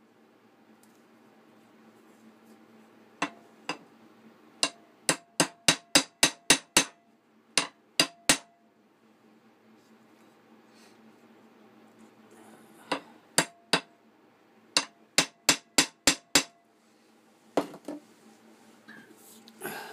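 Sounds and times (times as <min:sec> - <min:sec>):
hammer striking metal pin: 0:04.6 - 0:07.0, 0:07.6 - 0:08.5, 0:13.4 - 0:13.9, 0:14.8 - 0:16.6.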